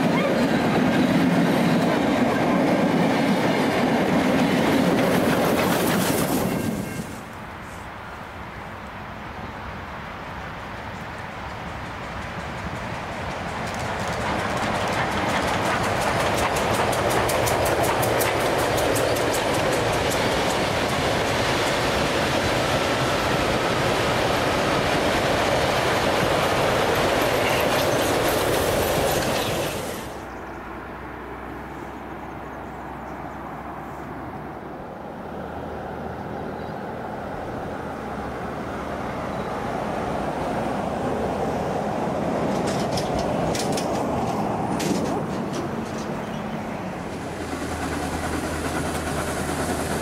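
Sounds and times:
rail-joint clickety-clack: 0:00.0 - 0:07.4, 0:10.9 - 0:30.3, 0:40.2 - 0:50.0
train rushing on rails: 0:00.0 - 0:50.0.

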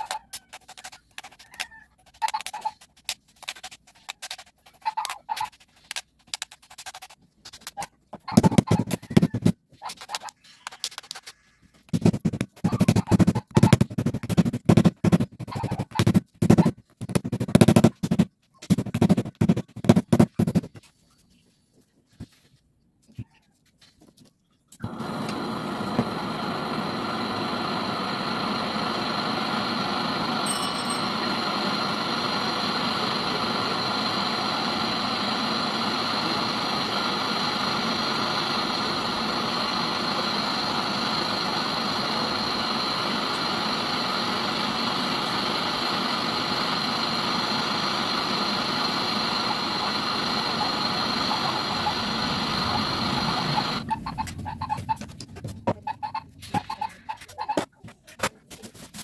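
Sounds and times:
machine idling: 0:24.9 - 0:54.7.

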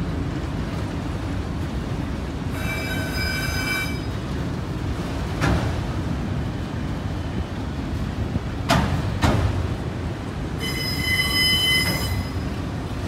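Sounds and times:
freight cars rumbling: 0:00.0 - 0:13.0
wheel squeal: 0:02.6 - 0:04.1, 0:10.6 - 0:12.5
wheels clacking over rail joint: 0:10.5 - 0:12.6.

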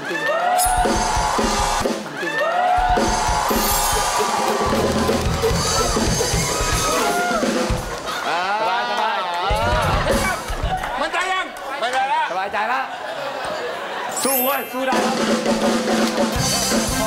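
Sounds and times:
drum kit: 0:00.6 - 0:02.1, 0:02.8 - 0:08.2, 0:09.5 - 0:11.0, 0:14.8 - 0:17.0.

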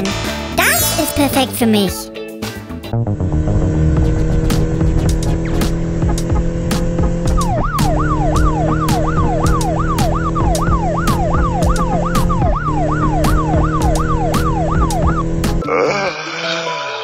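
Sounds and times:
background music with beat: 0:03.9 - 0:15.6
yelp siren: 0:07.2 - 0:15.5.

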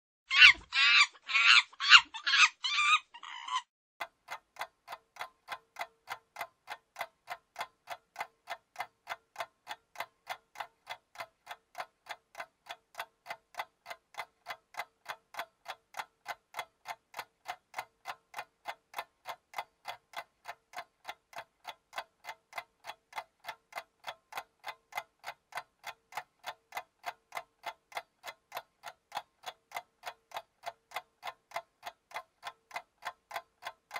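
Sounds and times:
loud high-pitched call: 0:00.3 - 0:03.6
clock ticking: 0:04.0 - 0:33.9.

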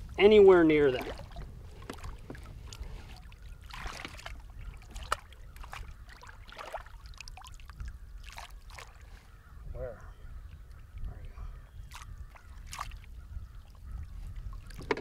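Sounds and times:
water splashes and drips: 0:00.7 - 0:09.1, 0:11.8 - 0:15.0.

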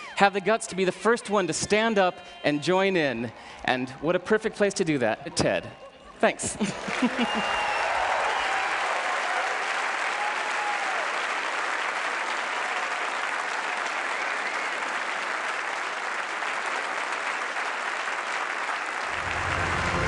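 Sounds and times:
audience applauding: 0:06.6 - 0:20.0
low music: 0:19.1 - 0:20.0.

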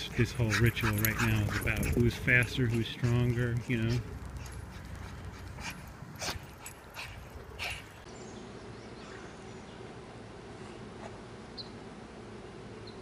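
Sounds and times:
dogs huffing and panting: 0:00.0 - 0:08.1.

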